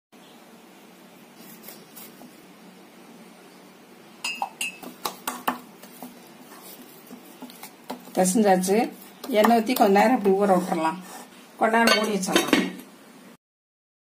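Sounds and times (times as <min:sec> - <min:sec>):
dough knocking in glass bowl: 0:04.2 - 0:06.2.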